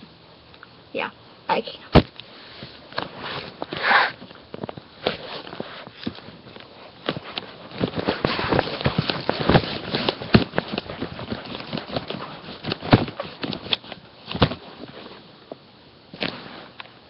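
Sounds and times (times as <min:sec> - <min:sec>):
webcam handling knocks and rustling: 0:04.5 - 0:14.9.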